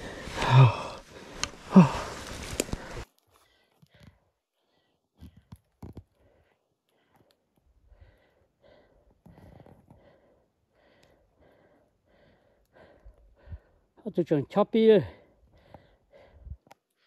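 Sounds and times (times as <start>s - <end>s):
soft quick breathing: 0.0s - 5.0s.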